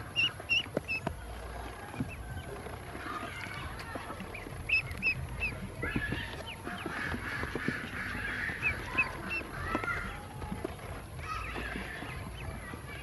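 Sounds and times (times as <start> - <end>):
ducklings peeping: 0.0 - 13.0.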